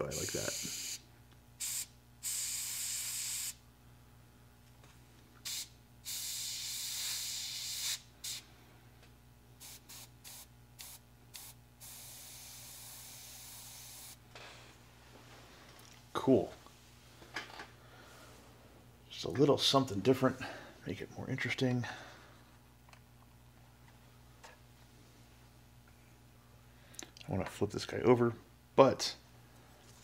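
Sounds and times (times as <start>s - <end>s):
airbrush spraying hiss: 0.0s - 1.0s, 1.6s - 3.6s, 5.4s - 8.4s, 9.6s - 14.2s
low steady hum: 3.6s - 6.1s, 8.0s - 30.0s.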